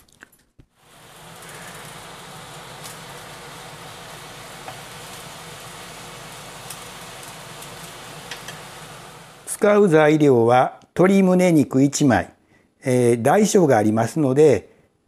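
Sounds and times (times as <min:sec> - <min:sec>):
food sizzling in a frying pan: 0:00.8 - 0:09.6.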